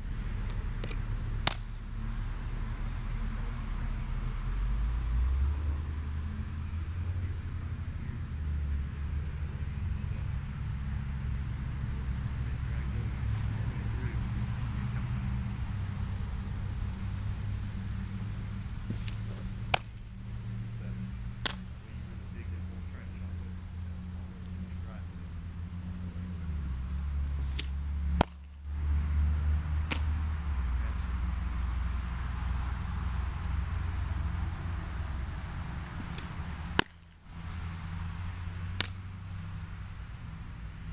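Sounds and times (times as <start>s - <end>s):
high-pitched insect chorus: 0.0s - 40.9s.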